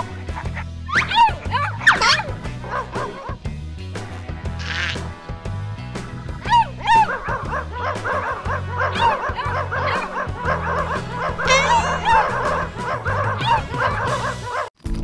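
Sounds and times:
puppies yipping and barking: 0.9 - 3.2, 6.5 - 14.7
cheerful background music: 5.4 - 14.4.

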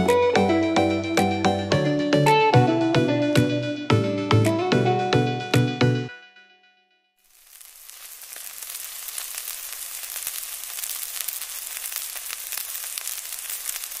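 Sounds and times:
food sizzling on grill: 7.2 - 14.0.

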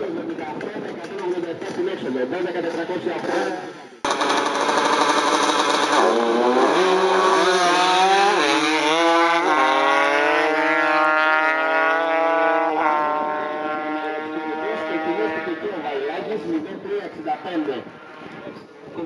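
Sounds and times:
motorcycles accelerating hard: 3.2 - 16.0.

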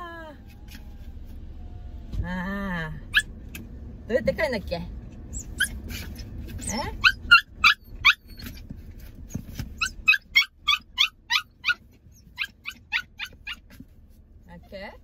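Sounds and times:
puppy yipping: 3.1 - 3.4, 5.3 - 13.8.

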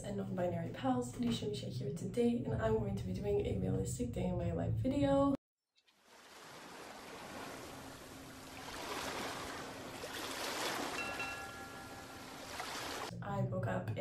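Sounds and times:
ocean surf on shore: 6.0 - 13.1.

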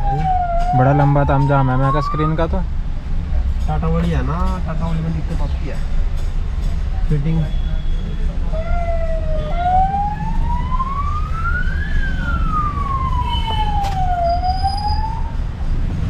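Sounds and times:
siren wailing: 0.0 - 2.6, 8.5 - 15.5.

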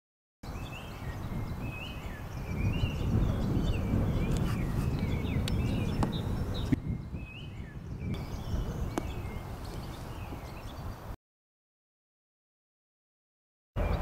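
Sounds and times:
birds chirping: 0.4 - 11.2, 13.8 - 14.0
wind on microphone: 0.5 - 11.2, 13.8 - 14.0.

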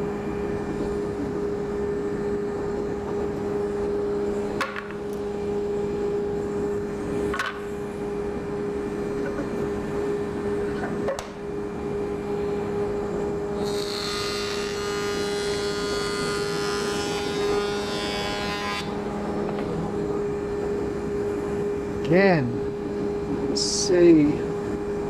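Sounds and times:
jointer humming: 11.5 - 25.0
board being cut by cutterhead: 13.6 - 18.9.

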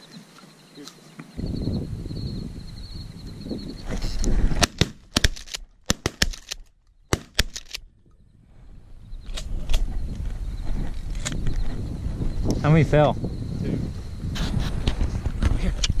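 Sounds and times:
shotgun shots: 4.5 - 7.8.

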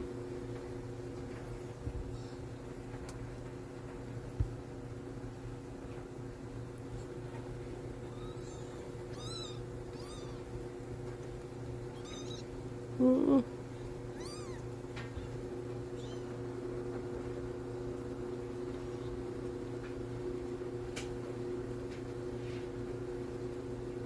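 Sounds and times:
steady low hum: 0.0 - 24.0
kitten mewing: 8.0 - 10.6, 11.9 - 13.5, 14.1 - 16.4.

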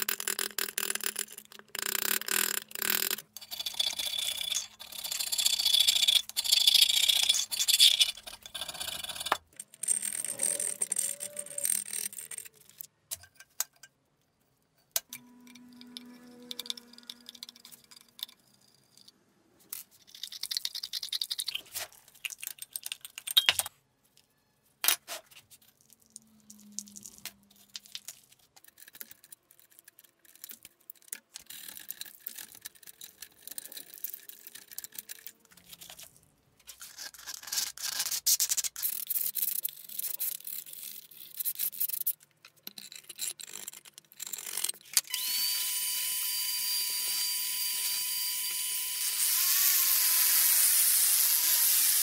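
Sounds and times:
screwdriver scraping metal: 1.8 - 13.4, 15.0 - 19.1.

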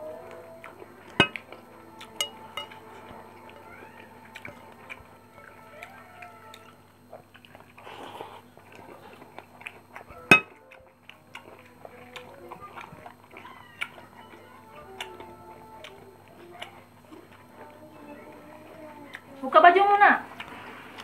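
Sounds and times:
faint high gliding cries: 0.0 - 6.9
chewing: 0.0 - 21.0
fingers working food on a plate: 1.1 - 6.8.

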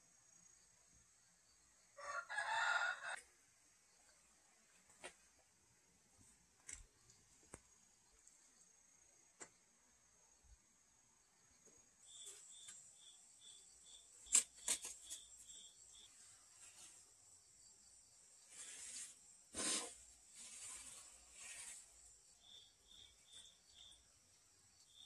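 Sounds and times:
insect chirping: 6.9 - 25.0
trowel scraping mortar: 18.6 - 21.9.

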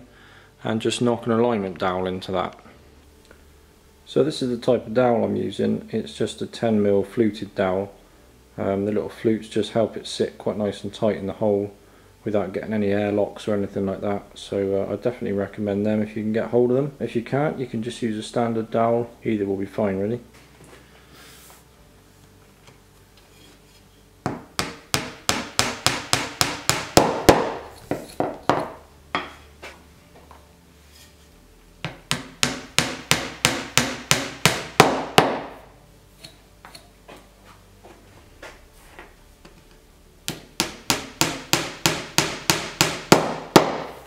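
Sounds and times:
hammer tapping wooden dowels: 24.2 - 29.3, 31.8 - 35.6, 40.3 - 44.0.

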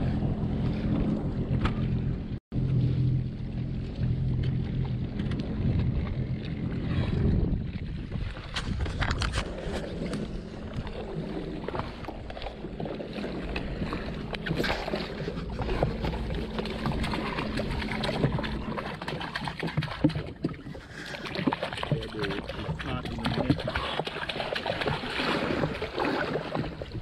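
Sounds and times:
jet ski engine idling: 0.0 - 7.0, 12.2 - 19.4
water sloshing against hull: 0.0 - 27.0.

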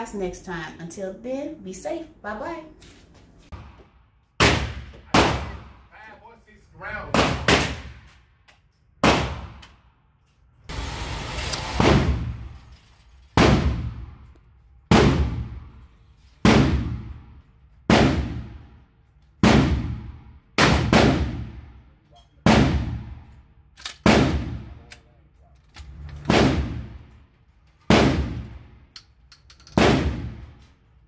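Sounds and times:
shotgun shots echoing: 4.4 - 5.9, 7.1 - 8.1, 9.0 - 9.6, 19.4 - 21.6, 24.0 - 24.7, 26.3 - 27.0, 27.9 - 28.6, 29.8 - 30.4.

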